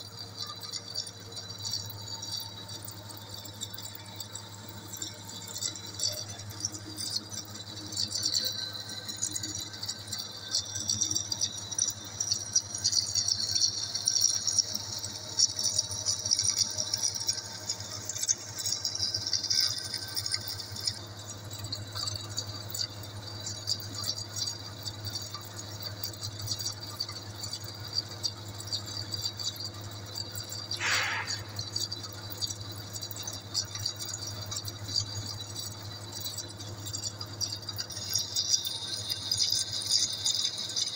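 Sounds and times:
lathe running with low hum: 0:00.0 - 0:40.9
metallic rattling: 0:30.7 - 0:32.0
brief falling squeal: 0:30.8 - 0:31.6.

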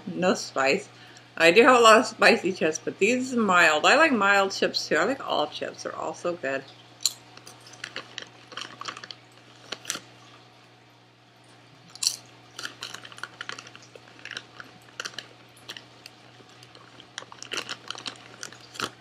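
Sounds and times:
chewing crisp chips: 0:07.4 - 0:10.4, 0:11.8 - 0:19.0
chip crunch bite: 0:11.9 - 0:19.0.

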